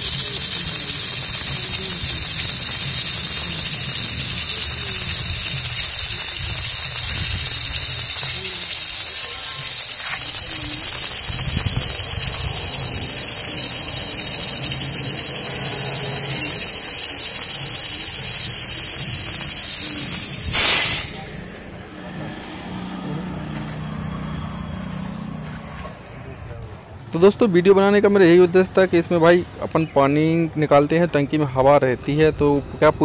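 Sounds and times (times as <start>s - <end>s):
compressed air and water hissing: 0.0s - 21.6s.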